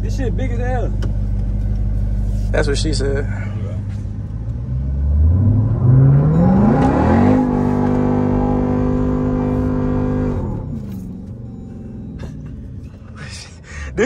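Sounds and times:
engine revving under acceleration: 3.8s - 12.5s.

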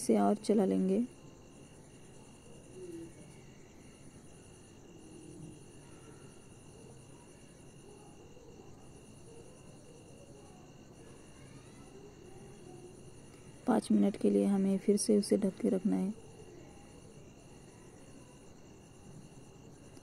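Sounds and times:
faint crickets trilling: 0.0s - 20.0s.

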